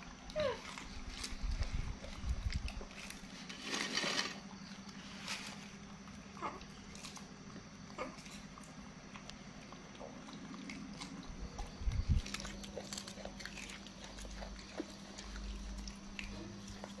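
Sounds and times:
monkey chewing green beans: 0:04.8 - 0:17.0.

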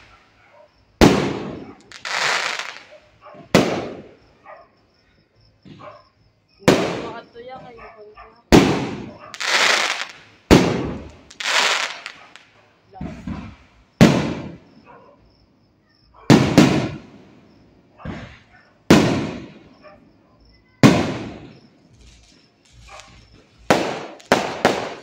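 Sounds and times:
firework shells bursting: 0:00.0 - 0:00.3, 0:01.0 - 0:04.3, 0:08.5 - 0:14.8, 0:16.3 - 0:17.2, 0:18.1 - 0:19.8, 0:20.8 - 0:25.0.

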